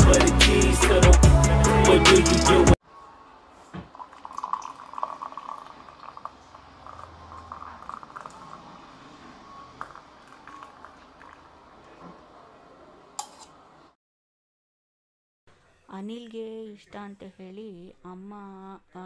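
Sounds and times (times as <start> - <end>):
tea trickling into mug: 3.9 - 8.8, 9.8 - 11.6.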